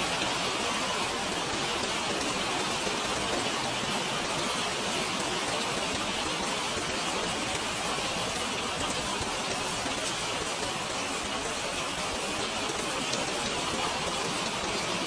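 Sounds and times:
rain falling steadily: 0.0s - 15.0s.

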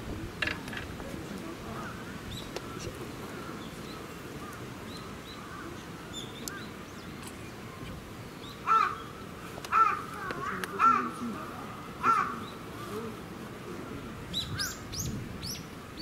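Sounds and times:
crows cawing: 8.6s - 13.1s.

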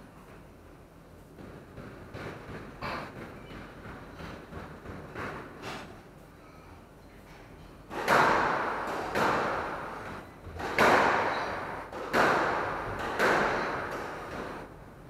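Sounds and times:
squash ball hits echoing: 1.4s - 5.9s, 7.9s - 14.7s.

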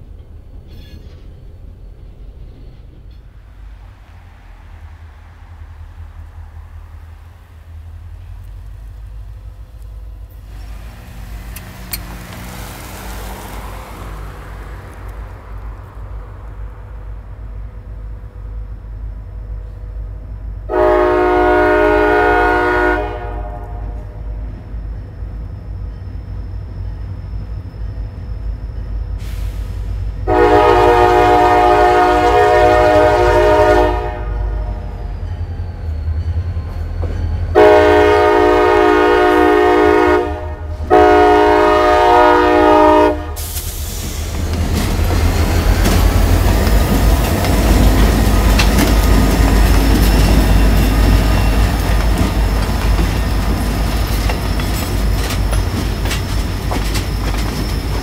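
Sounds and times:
diesel locomotive rumble: 0.0s - 58.0s
train wheels rumbling: 0.0s - 58.0s
locomotive horn blasts: 20.7s - 24.4s, 30.2s - 35.0s, 37.5s - 43.6s.

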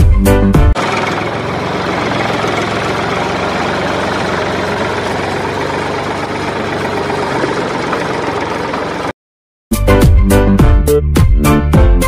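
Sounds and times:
tractor engine idling: 0.8s - 9.2s.

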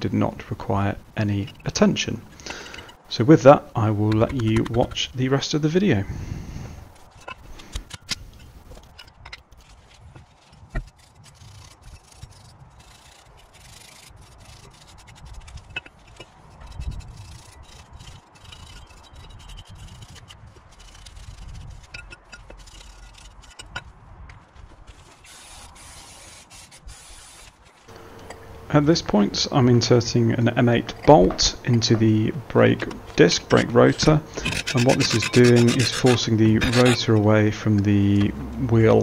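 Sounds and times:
metal parts scraping: 1.3s - 3.1s, 6.5s - 23.8s, 30.7s - 37.2s.

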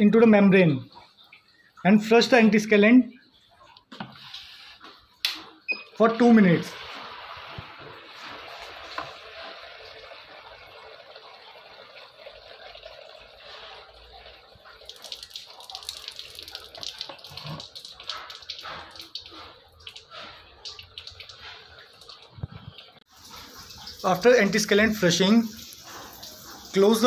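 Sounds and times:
water running from tube: 6.6s - 27.0s.

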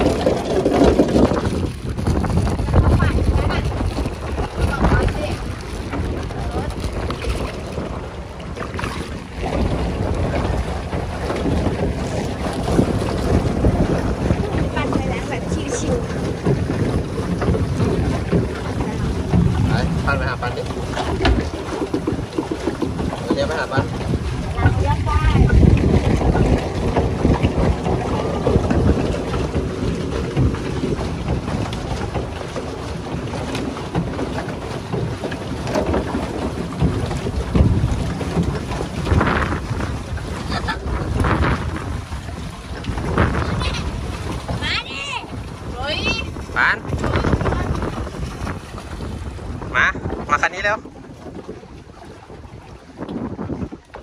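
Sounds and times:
water splashing around boat: 0.0s - 54.0s
wind rumbling on microphone: 0.0s - 54.0s.

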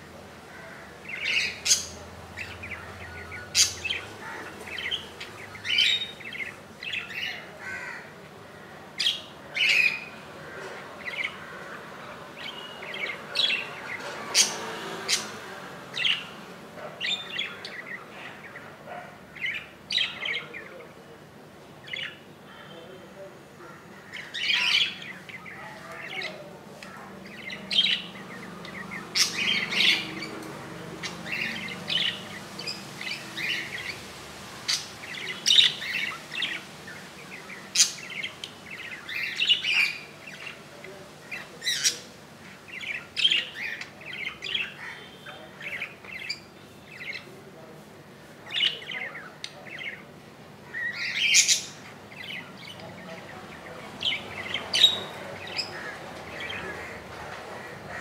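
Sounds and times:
budgerigars chirping: 0.5s - 8.0s, 9.0s - 20.9s, 24.0s - 47.3s, 48.4s - 50.0s, 50.6s - 58.0s.

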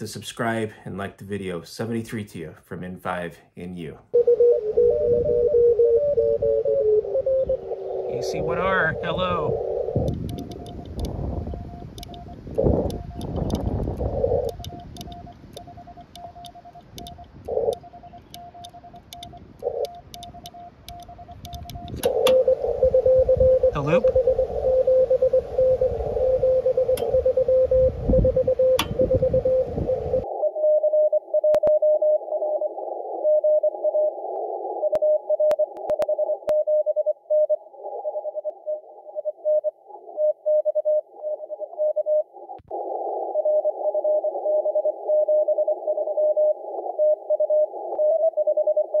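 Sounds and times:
morse code tone: 4.2s - 32.2s
radio band hiss: 8.0s - 15.7s, 23.7s - 24.2s.

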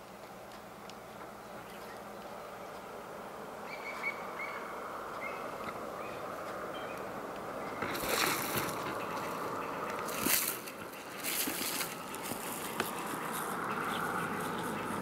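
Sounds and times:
porcupine quills rattling: 7.6s - 15.0s.

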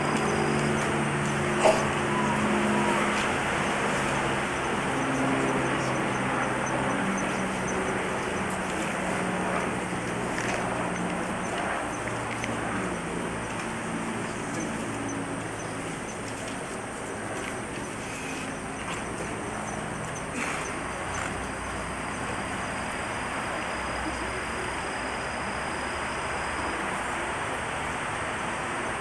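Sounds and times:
thin high whine: 0.0s - 28.0s
faint murmur of voices: 0.0s - 29.0s.

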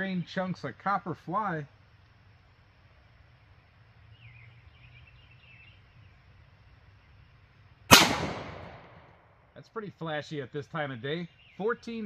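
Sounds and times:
faint bird chirps: 4.0s - 6.3s, 11.1s - 12.0s
pistol shot with echo: 7.9s - 9.2s.

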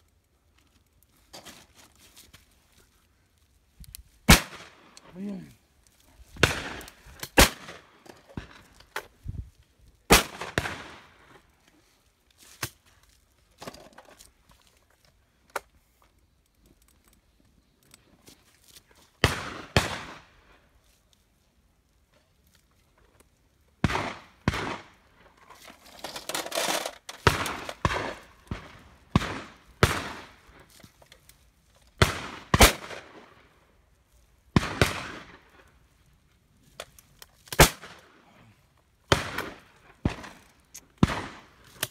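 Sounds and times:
shotgun shots with echo: 4.3s - 4.8s, 23.8s - 24.9s.

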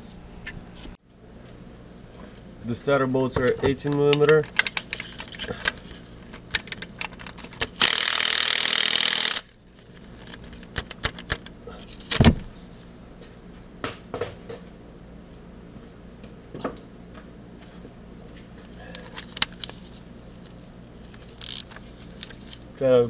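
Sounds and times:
impact wrench running: 7.8s - 9.5s, 21.4s - 21.8s.

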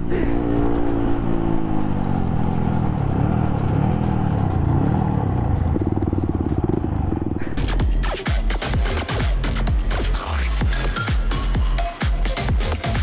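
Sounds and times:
motorcycle engine: 0.0s - 10.0s.

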